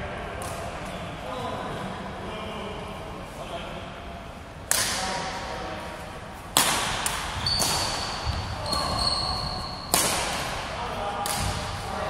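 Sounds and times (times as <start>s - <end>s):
racket hitting shuttlecock: 6.5s - 9.0s, 9.9s - 11.8s
thin high squeak: 7.4s - 9.9s.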